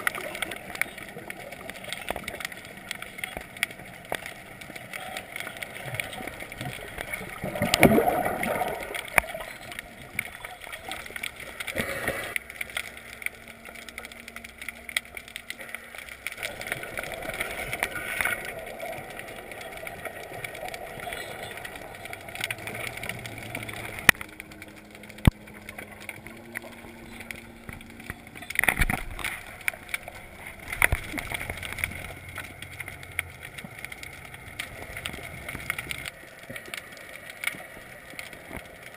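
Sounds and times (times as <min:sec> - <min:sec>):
sharp underwater clicks: 0:00.0 - 0:38.9
underwater water noise: 0:00.0 - 0:38.9
whooshing surges of water: 0:06.7 - 0:09.6.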